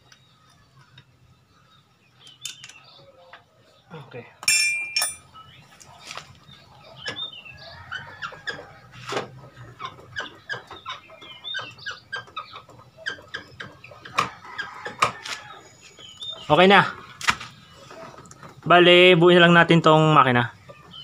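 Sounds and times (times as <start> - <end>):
chickens clucking: 5.5 - 21.0.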